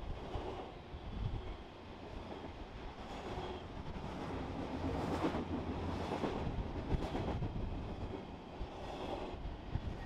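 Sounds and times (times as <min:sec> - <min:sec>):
freight train rolling rumble: 0:00.0 - 0:10.0.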